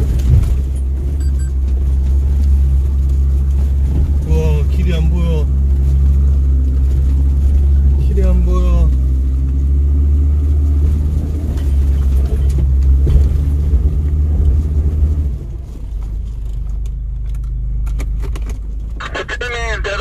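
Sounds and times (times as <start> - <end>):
knocks and rattles: 0.0 - 2.1
vehicle engine running under load: 0.0 - 20.0.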